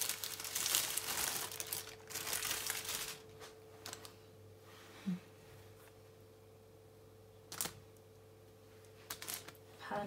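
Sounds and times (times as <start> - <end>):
plastic bag crinkling: 0.0 - 4.2, 7.5 - 7.8, 8.9 - 9.6.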